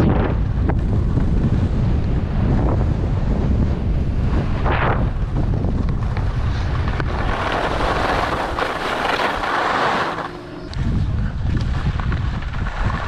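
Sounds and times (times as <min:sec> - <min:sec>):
wind buffeting microphone: 0:00.0 - 0:13.0
skis scraping over snow: 0:00.1 - 0:13.0.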